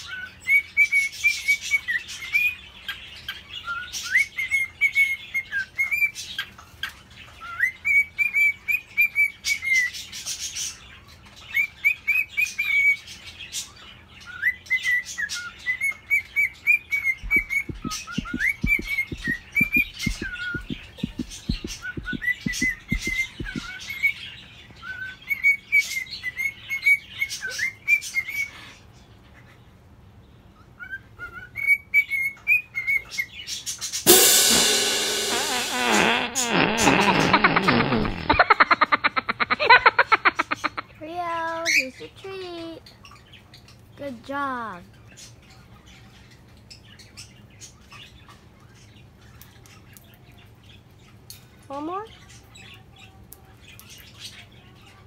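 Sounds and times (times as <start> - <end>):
cockatiel whistled chirps and warbles: 0.0 - 10.3, 14.2 - 24.2, 30.6 - 34.0
quick low knocks: 17.2 - 23.7
sharp clicks: 17.3 - 23.7.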